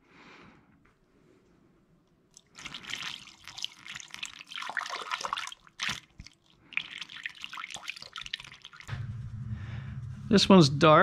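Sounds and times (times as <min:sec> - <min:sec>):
liquid splashing into radiator: 0:02.4 - 0:08.9.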